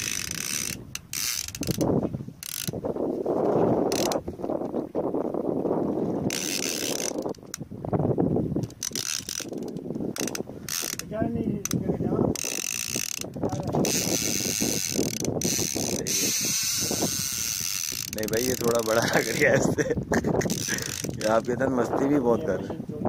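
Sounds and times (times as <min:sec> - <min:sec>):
fishing reel ratchet cranking: 0:00.0 - 0:02.8, 0:03.9 - 0:04.2, 0:06.3 - 0:07.6, 0:08.6 - 0:19.5, 0:20.4 - 0:21.5.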